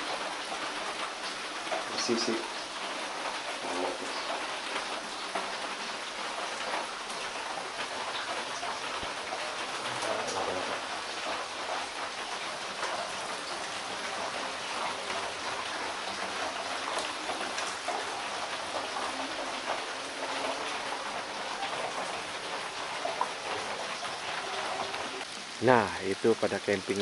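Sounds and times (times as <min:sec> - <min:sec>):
rain on a metal roof: 0:00.0 - 0:27.0.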